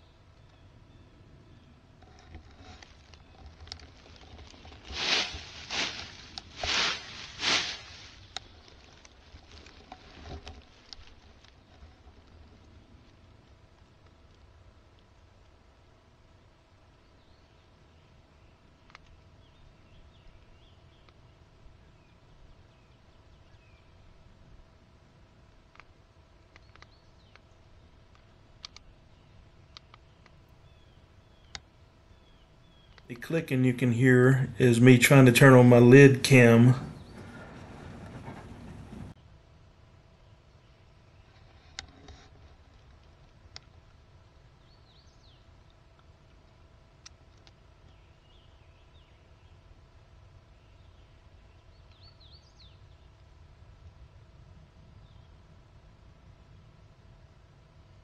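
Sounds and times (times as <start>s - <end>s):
songbird chirps: 0.0s - 11.8s, 16.3s - 24.8s, 25.4s - 39.2s, 44.2s - 46.1s, 47.2s - 53.4s.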